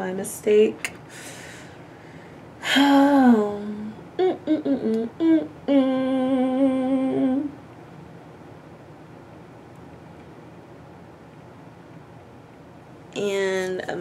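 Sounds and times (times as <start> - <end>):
woman humming: 2.6 - 7.6.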